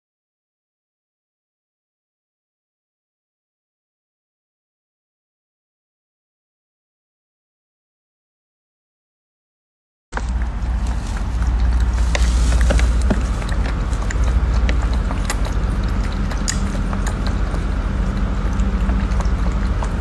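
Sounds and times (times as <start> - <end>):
cats lapping water: 10.2 - 20.0
water fountain pump humming: 10.2 - 20.0.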